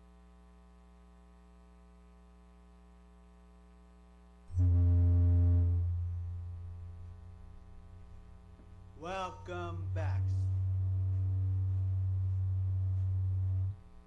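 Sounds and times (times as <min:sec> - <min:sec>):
deep electronic bass tone: 0:04.5 - 0:14.0
higher electronic notes: 0:04.6 - 0:07.9, 0:09.0 - 0:14.0.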